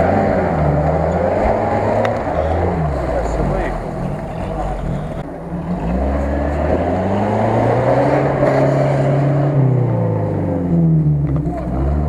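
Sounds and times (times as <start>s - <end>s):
off-road vehicle engine under load: 0.0s - 12.0s.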